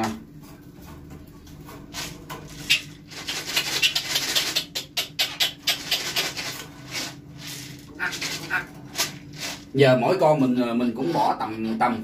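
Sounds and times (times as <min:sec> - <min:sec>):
feed pellets clicking and rattling: 0:05.5 - 0:09.7.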